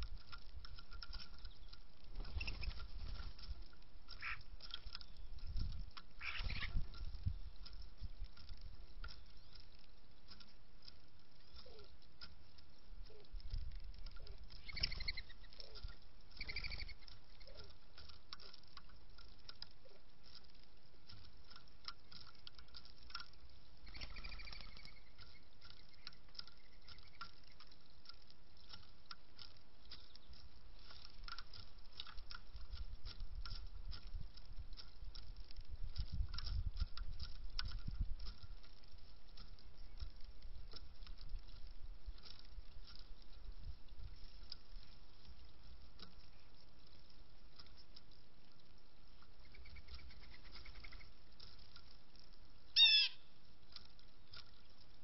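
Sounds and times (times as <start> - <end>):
birds pecking on wood: 0.0 - 55.0
short bird calls: 4.2 - 4.5, 6.2 - 6.8, 52.8 - 53.3.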